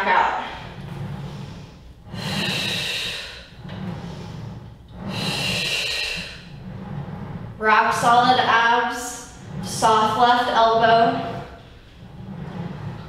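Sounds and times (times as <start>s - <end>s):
woman breathing: 0.6s - 7.1s.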